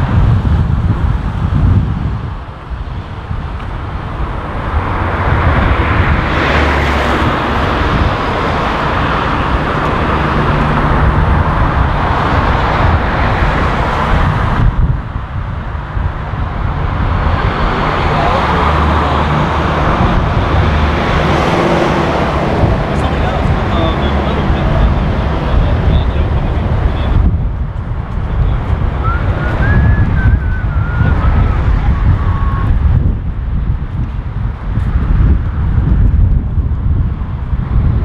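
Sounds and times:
city road traffic: 0.0 - 38.0.

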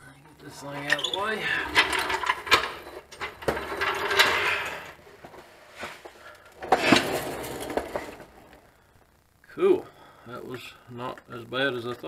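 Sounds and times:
metal equipment clattering: 0.7 - 5.0.

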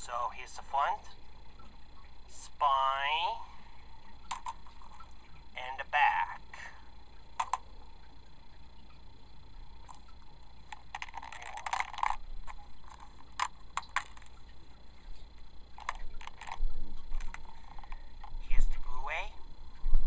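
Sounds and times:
plastic case clicks and rustles: 4.2 - 5.0, 10.7 - 14.4, 15.8 - 18.4.

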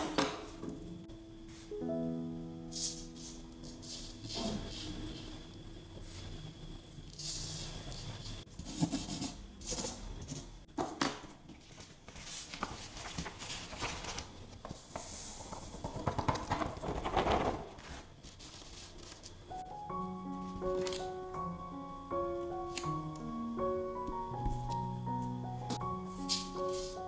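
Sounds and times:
paper rustling and scraping: 7.2 - 10.4, 11.5 - 19.4, 20.6 - 21.1, 26.0 - 27.0.

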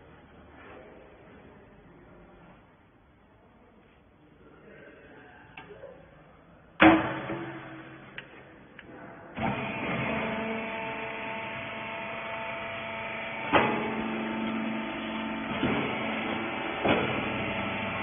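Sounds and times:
baler motor humming: 9.4 - 18.0.

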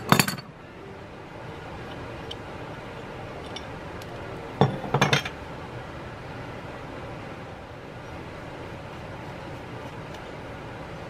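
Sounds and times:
metal tools clinking on workbench: 0.0 - 0.5.

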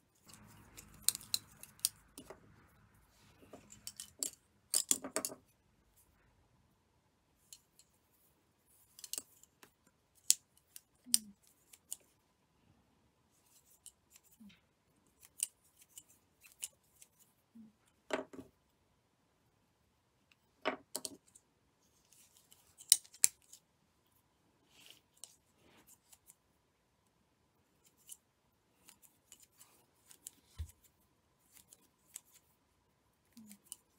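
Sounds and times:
thread rubbing: 0.0 - 6.2.

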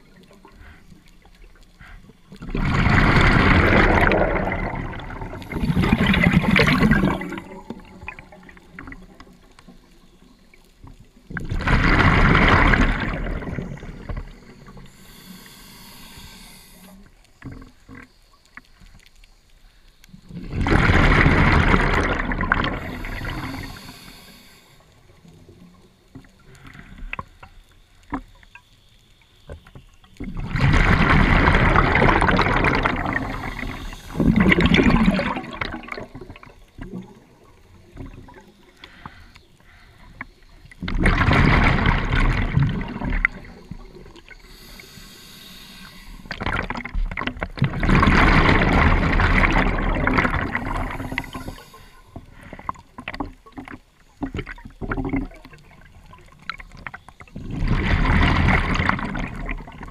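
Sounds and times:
diver breathing through regulator: 0.5 - 3.4, 14.6 - 17.1, 22.7 - 25.0, 33.0 - 35.0, 38.6 - 40.4, 44.3 - 46.4, 50.6 - 52.9
exhaled bubbles gushing: 1.8 - 9.5, 11.2 - 14.9, 20.2 - 24.0, 30.2 - 38.6, 40.6 - 44.8, 45.9 - 59.9.

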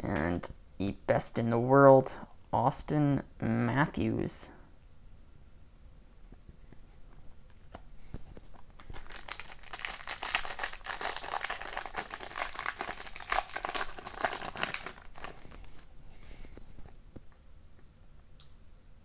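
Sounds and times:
foil wrapper crinkling: 8.5 - 15.9.

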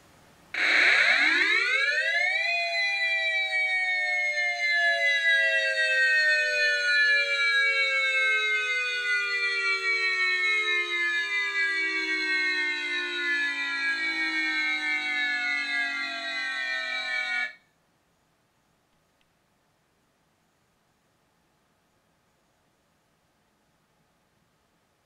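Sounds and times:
warning siren: 0.6 - 17.6.

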